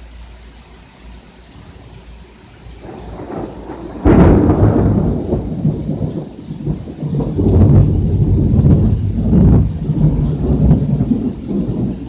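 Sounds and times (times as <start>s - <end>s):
heavy rain pouring: 0.0s - 12.0s
thunder clap and rumble: 2.7s - 12.0s.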